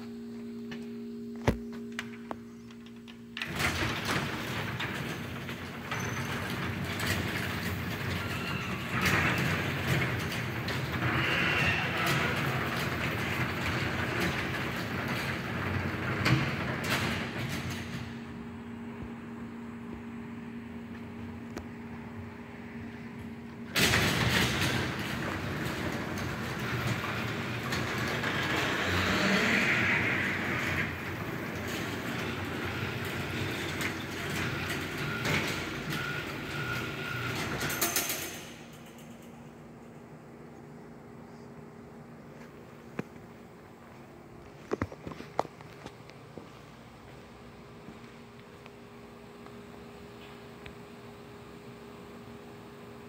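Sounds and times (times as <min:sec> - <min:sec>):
garage door opener running: 0:00.0 - 0:41.1.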